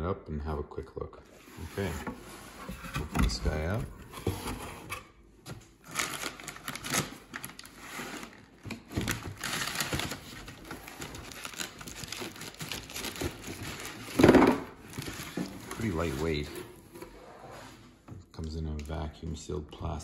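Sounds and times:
plastic wrap and paper crinkling: 5.8 - 16.5.

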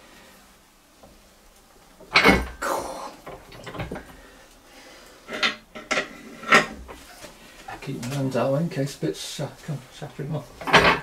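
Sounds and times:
spanner clanking on metal: 10.6 - 11.0.

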